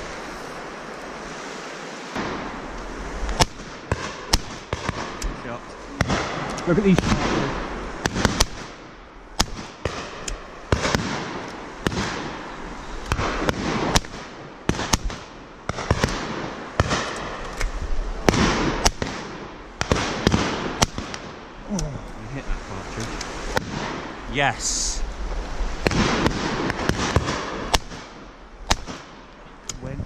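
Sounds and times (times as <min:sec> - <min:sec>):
shotgun shots with echo: 0:06.0 - 0:08.8, 0:09.4 - 0:12.4, 0:13.1 - 0:17.4, 0:18.2 - 0:21.4, 0:25.8 - 0:29.2.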